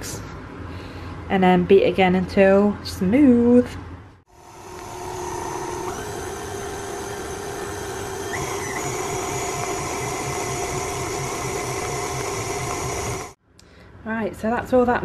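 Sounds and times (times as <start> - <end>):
stand mixer running: 4.3 - 13.4.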